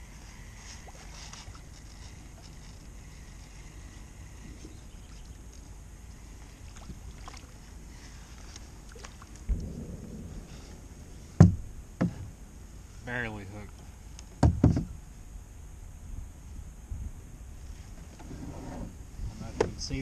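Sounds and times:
wind and water rumble: 0.0s - 20.0s.

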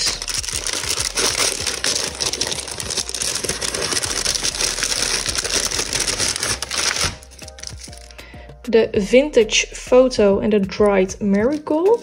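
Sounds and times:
tissue paper crinkling: 0.0s - 8.1s.

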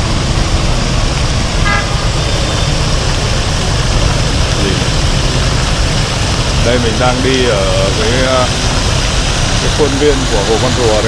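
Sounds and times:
road traffic noise: 0.0s - 11.0s
vehicle horn toot: 1.6s - 2.4s.

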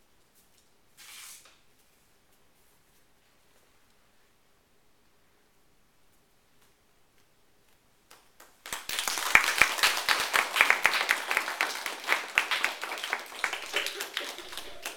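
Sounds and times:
people applauding: 8.4s - 14.9s.

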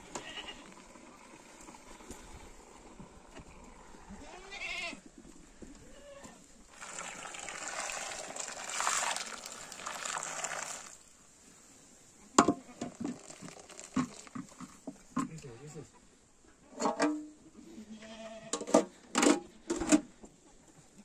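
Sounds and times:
goat bleating: 0.1s - 0.7s, 4.2s - 5.1s, 17.8s - 18.6s.

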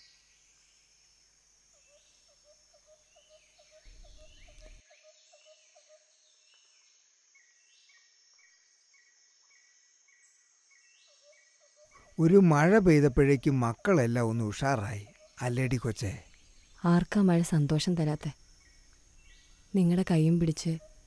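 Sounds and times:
high insect drone: 0.0s - 21.0s
birds chirping: 3.0s - 5.8s, 11.1s - 21.0s.

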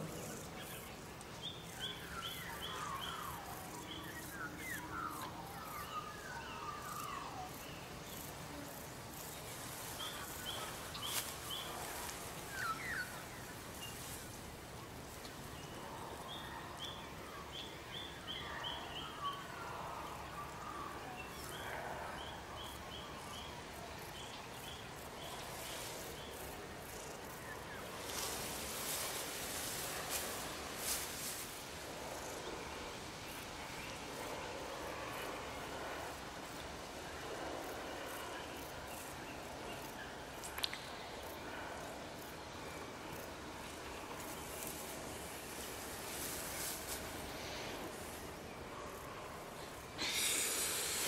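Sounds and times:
steady background hiss: 0.0s - 51.0s.

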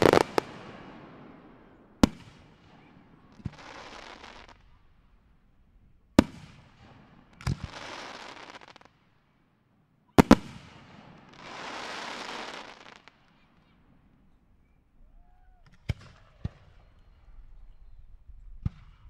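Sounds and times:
firework shells bursting with bangs: 0.0s - 4.6s.

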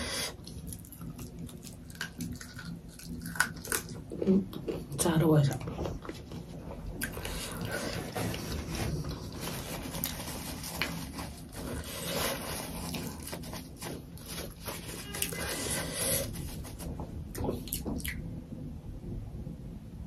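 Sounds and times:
paper tissue rustling and crinkling: 5.9s - 17.6s.

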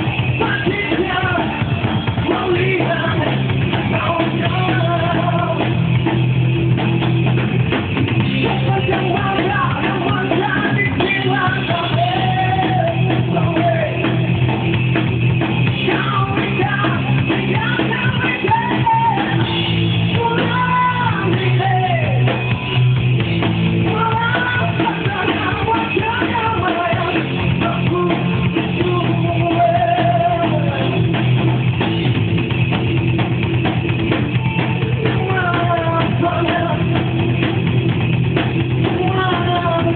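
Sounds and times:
drums: 0.0s - 39.9s
guitar: 0.0s - 39.9s
man singing: 0.4s - 5.8s, 8.4s - 14.3s, 15.8s - 19.5s, 20.1s - 22.4s, 23.9s - 31.1s, 34.9s - 37.1s, 38.8s - 39.9s.

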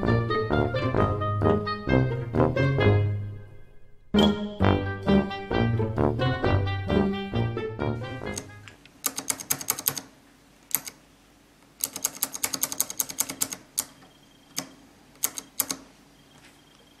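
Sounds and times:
clicky keyboard key presses: 8.3s - 10.1s, 10.7s - 11.0s, 11.8s - 15.9s.

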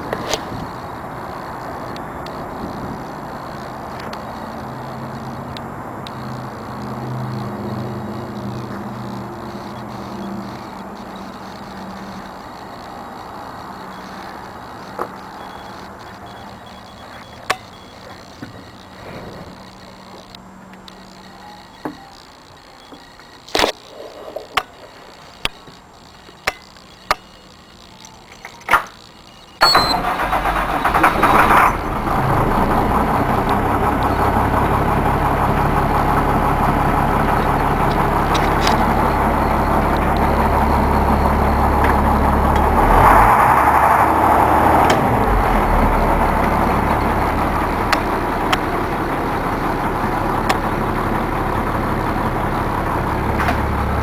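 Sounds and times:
diesel engine idling: 0.0s - 23.6s, 28.9s - 54.0s
sharp clicks: 0.0s - 23.9s, 24.5s - 30.0s, 36.0s - 43.2s, 46.0s - 48.8s, 50.4s - 50.7s
diesel engine cranking and starting: 0.0s - 54.0s.

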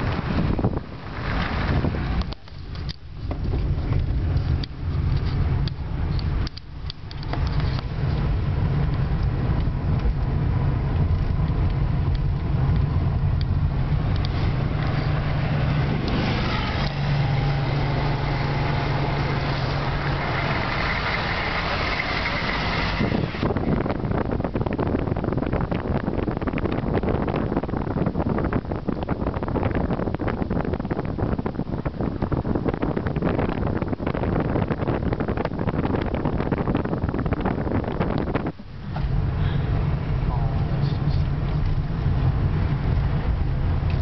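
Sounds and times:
car engine hum and road noise: 0.0s - 44.0s
loud rushing noise: 13.7s - 24.2s.

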